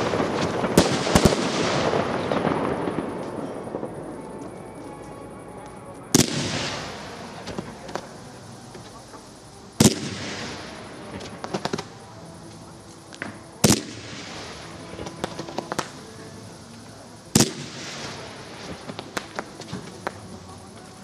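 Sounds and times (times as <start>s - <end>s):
loud firework bangs: 0.0s - 4.4s, 6.1s - 8.1s, 9.8s - 12.0s, 13.2s - 16.0s, 17.3s - 20.3s
crackling firework pops: 0.0s - 21.0s.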